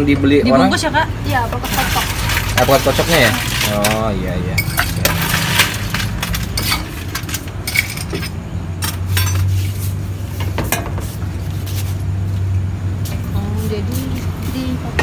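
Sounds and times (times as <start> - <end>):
spoon and dish clatter: 1.9 - 9.5.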